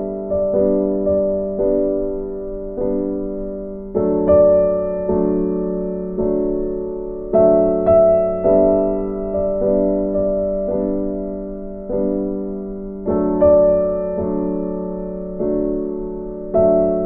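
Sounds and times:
piano playing slow chords: 0.0 - 17.0.

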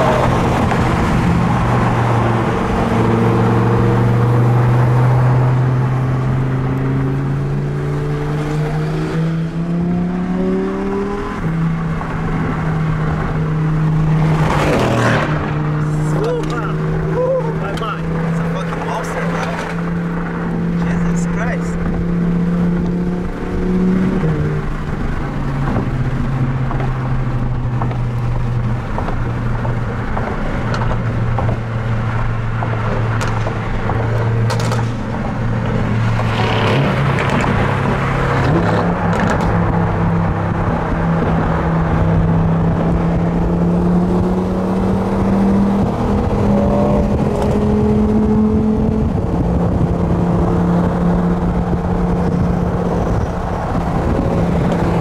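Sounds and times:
car engine running: 0.0 - 55.0
constant rushing noise: 12.0 - 55.0.

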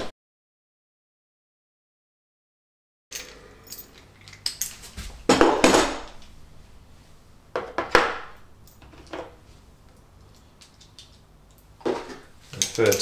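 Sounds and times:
metal hand tools clinking: 3.1 - 4.8, 12.6 - 13.0.

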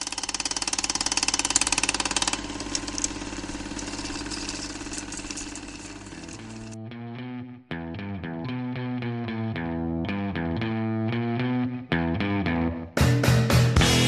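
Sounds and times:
engine chugging: 0.0 - 6.8.

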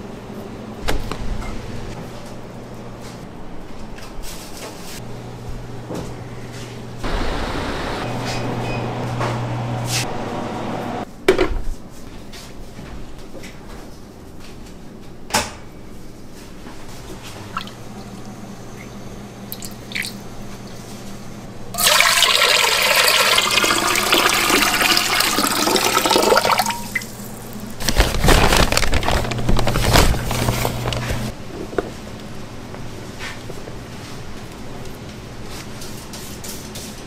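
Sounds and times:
low machine hum: 5.0 - 11.1, 15.8 - 35.5
water pouring into container: 21.8 - 27.3.

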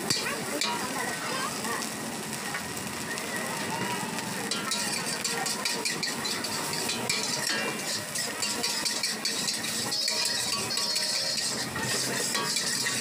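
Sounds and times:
metal spatula scraping wok: 0.0 - 1.7, 4.4 - 13.0
rice sizzling in a wok: 0.0 - 13.0.

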